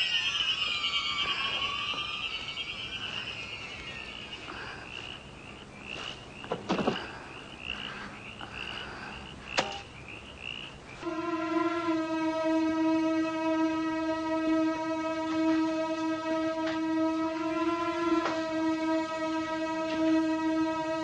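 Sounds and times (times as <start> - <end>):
loud sustained low tone: 0.0 - 5.0, 11.0 - 21.0
frogs chirping: 0.0 - 11.1.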